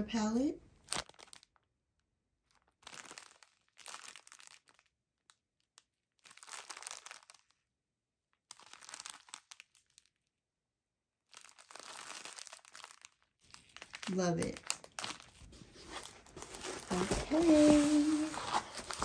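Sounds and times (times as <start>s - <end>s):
plastic bag crinkling: 0.8s - 1.6s, 2.4s - 4.9s, 6.2s - 7.5s, 8.5s - 10.2s, 11.3s - 19.0s.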